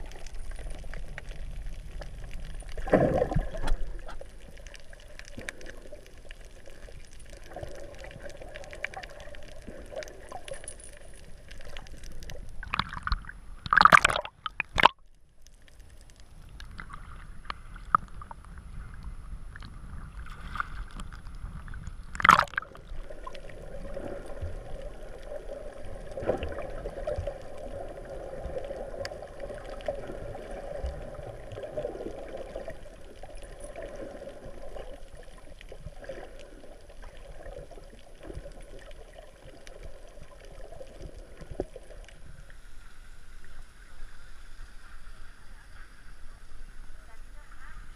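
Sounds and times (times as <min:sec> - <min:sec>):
gurgling water: 0:00.0 - 0:47.9
muffled underwater hum: 0:39.5 - 0:47.9.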